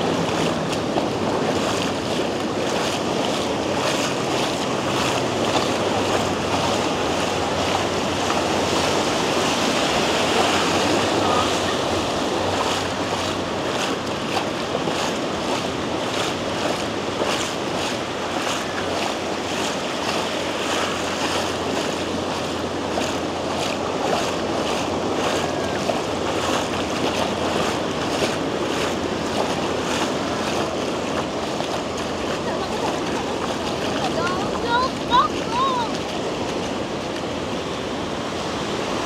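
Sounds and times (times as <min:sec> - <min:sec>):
faint footsteps: 0:00.0 - 0:37.9
surf breaking on beach: 0:00.0 - 0:39.0
wind buffeting microphone: 0:00.0 - 0:39.0.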